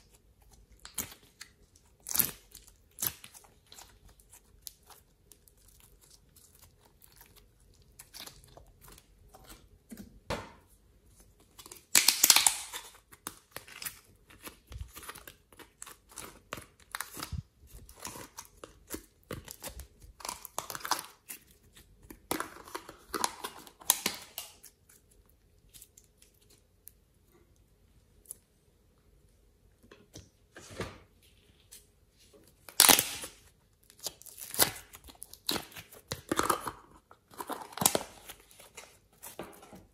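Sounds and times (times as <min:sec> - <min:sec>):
slime squishing and crackling: 0:00.0 - 0:09.8, 0:11.4 - 0:27.0, 0:32.6 - 0:39.4.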